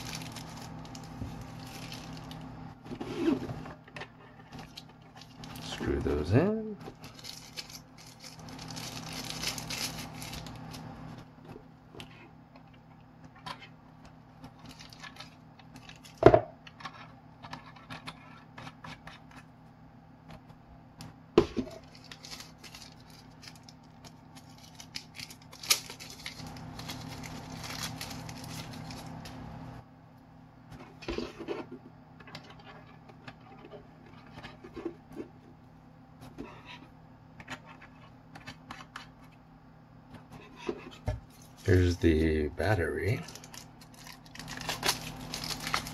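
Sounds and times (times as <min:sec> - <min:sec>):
plastic film peeling and crinkling: 0:00.0 - 0:02.5, 0:06.9 - 0:10.9, 0:14.5 - 0:16.2, 0:21.7 - 0:29.4, 0:43.2 - 0:45.9.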